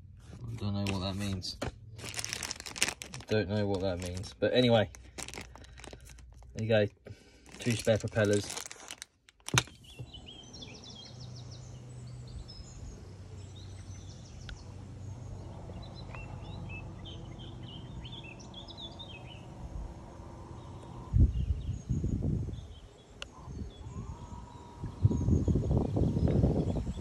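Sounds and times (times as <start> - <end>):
songbirds chirping and singing: 6.6 - 27.0.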